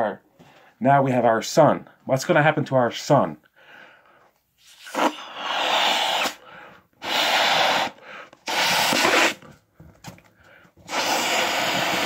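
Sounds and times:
breath blowing up balloon: 4.6 - 9.5, 10.8 - 12.0.

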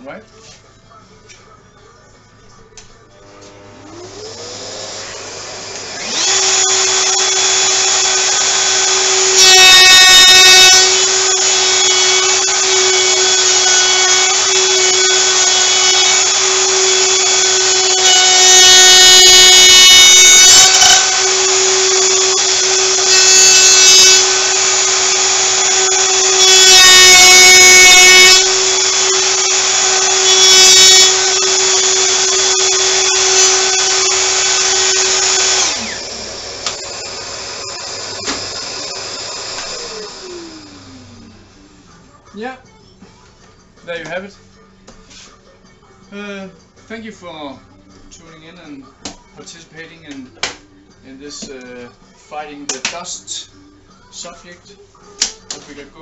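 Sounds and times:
router cutting wood: 3.2 - 41.4.

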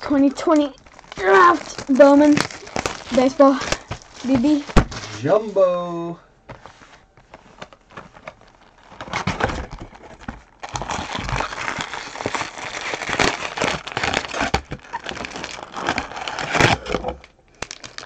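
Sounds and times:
foil packs crinkling: 0.0 - 5.4, 7.1 - 18.0.

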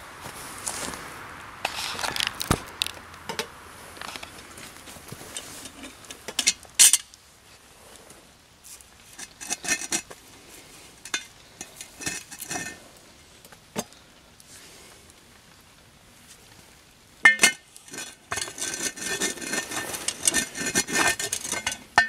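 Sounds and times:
cast iron pot clinking and scraping: 3.3 - 7.2, 9.0 - 14.0, 17.2 - 22.0.

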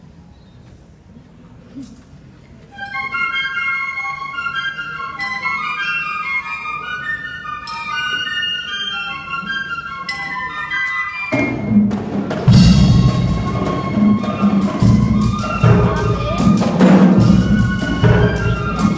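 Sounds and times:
high melody: 2.7 - 11.9, 12.5 - 18.9
brass band playing: 2.8 - 18.9
drum strikes: 11.3 - 18.9.

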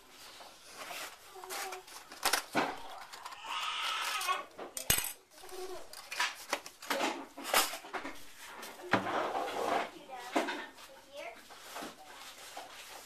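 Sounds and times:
spoon and containers clinking: 4.2 - 8.1.

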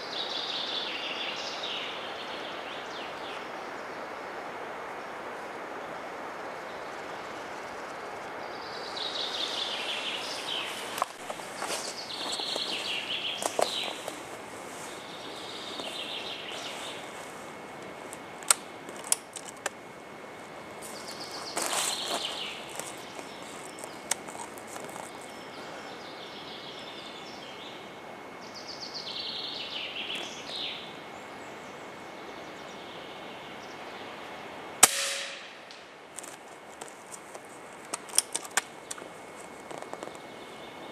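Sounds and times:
outdoor background hiss: 0.0 - 40.9
songbird singing: 0.0 - 40.9
footsteps rustling on forest floor: 9.3 - 19.6, 20.4 - 25.8, 36.1 - 40.4
air rifle shot: 34.8 - 35.8.

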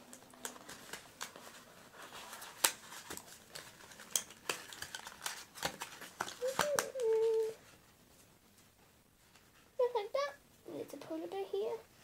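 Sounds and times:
cardboard packaging rustling: 0.0 - 7.8.

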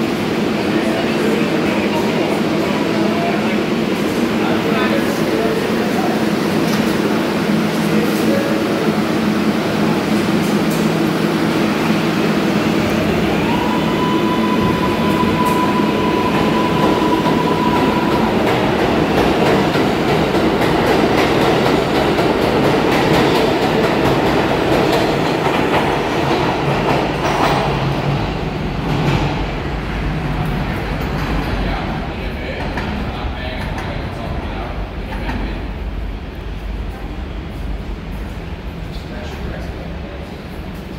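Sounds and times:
subway traction motors whining: 0.0 - 40.9
train wheels clicking over rails: 15.1 - 34.2.

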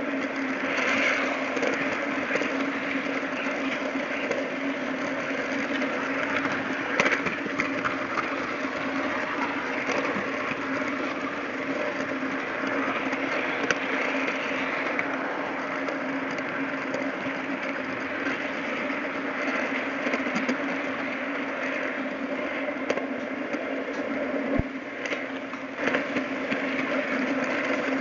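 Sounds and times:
model train running rumble: 0.0 - 28.0.

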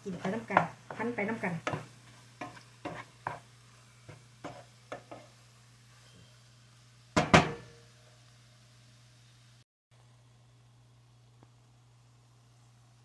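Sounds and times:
wooden spatula scraping frying pan: 0.0 - 5.4.

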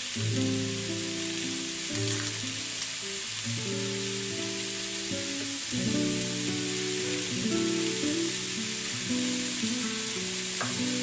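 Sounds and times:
mushrooms sizzling in a pan: 0.0 - 11.0
background music of held notes: 3.7 - 11.0.

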